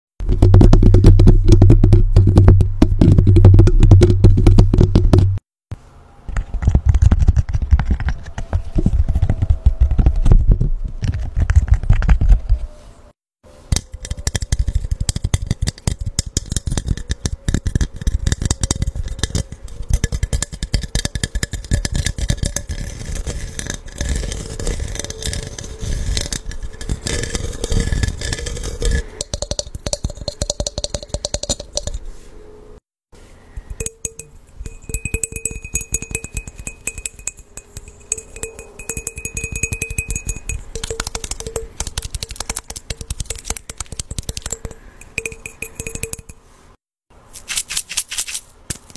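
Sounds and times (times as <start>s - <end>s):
tapping on glass cup: 29.2s - 32.0s, 33.7s - 46.4s
fingertips tapping microphone grille: 33.6s - 46.4s.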